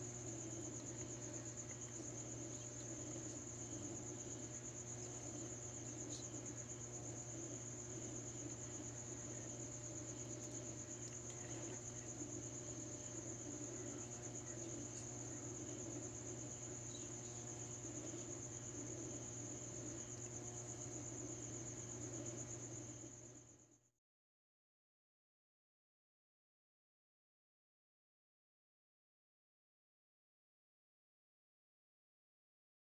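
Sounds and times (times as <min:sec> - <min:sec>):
crickets trilling: 0:00.0 - 0:23.8
steady low hum: 0:00.0 - 0:23.8.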